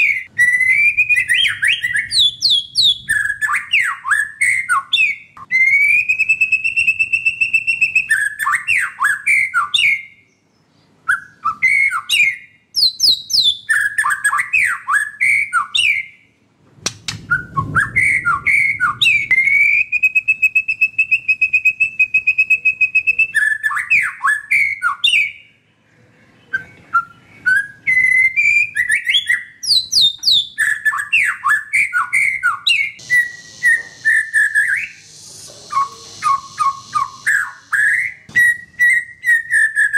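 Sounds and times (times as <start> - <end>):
bird singing whistled trills: 0.0 - 16.3, 17.2 - 25.6, 26.4 - 39.9.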